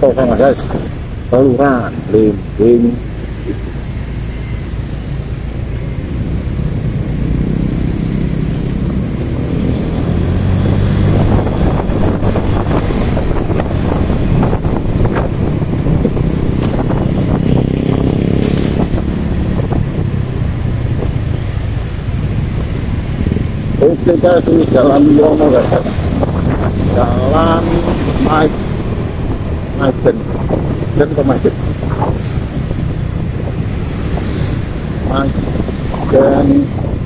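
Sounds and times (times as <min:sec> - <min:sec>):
traffic: 0:00.0 - 0:37.0
wind noise on microphone: 0:06.8 - 0:37.0.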